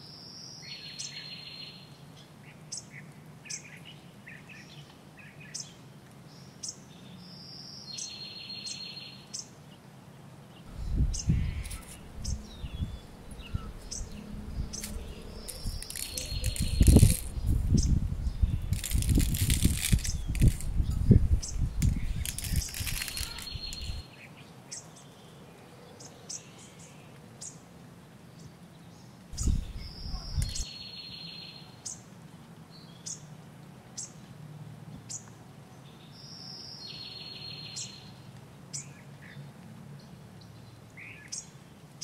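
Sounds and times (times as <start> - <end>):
birds chirping: 10.5 - 27.6, 28.4 - 32.0
buzzy bird trills: 10.8 - 18.0, 18.6 - 24.0.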